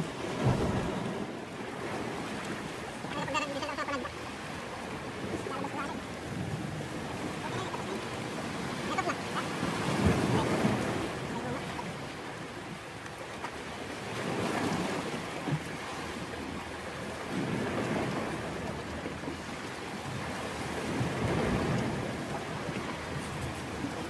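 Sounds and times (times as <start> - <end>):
sea waves washing ashore: 0.0 - 24.0.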